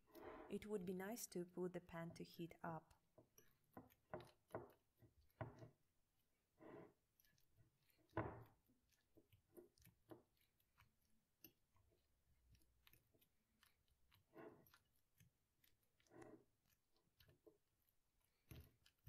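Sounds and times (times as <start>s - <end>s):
fork mashing banana: 2.9s - 19.0s
fork clicking and tapping: 3.2s - 5.8s, 7.2s - 16.4s.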